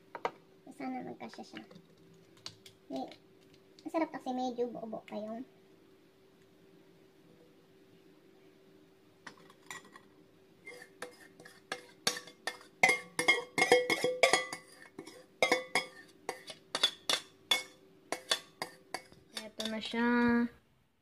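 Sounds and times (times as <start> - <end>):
utensil knocking in metal bowl: 10.7 - 19.8
metal bowl ringing: 12.1 - 14.8, 15.4 - 16.0.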